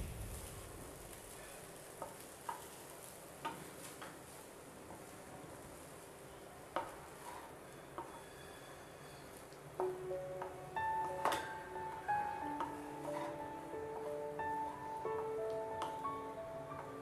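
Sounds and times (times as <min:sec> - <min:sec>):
faint sizzle: 0:00.0 - 0:17.0
spatula stirring rice: 0:06.7 - 0:08.2, 0:12.6 - 0:13.4.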